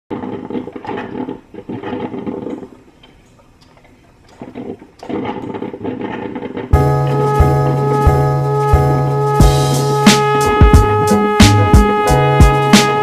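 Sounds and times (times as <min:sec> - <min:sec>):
coffee maker gurgling and hissing: 0:00.1 - 0:06.8
background music with a beat: 0:06.8 - 0:13.0.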